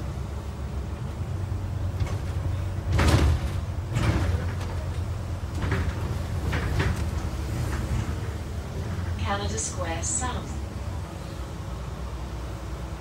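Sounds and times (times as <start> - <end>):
bus engine and road rumble: 0.0 - 13.0
bus bodywork knocks: 1.9 - 8.4.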